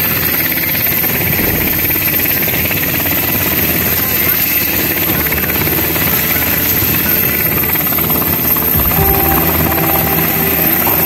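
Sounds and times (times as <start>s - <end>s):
steady pitched tones: 8.8s - 11.0s.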